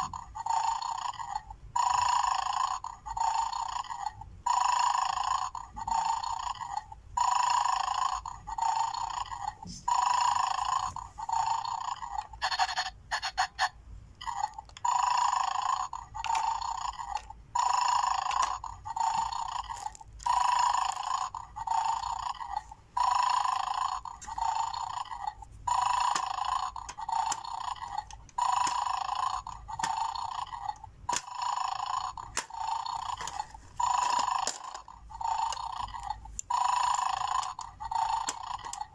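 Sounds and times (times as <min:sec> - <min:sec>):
electronic snoring sound effect: 0:00.0 - 0:38.9
plastic clicks: 0:26.1 - 0:28.9, 0:31.1 - 0:31.4, 0:32.3 - 0:33.6, 0:34.4 - 0:34.8, 0:37.4 - 0:38.9.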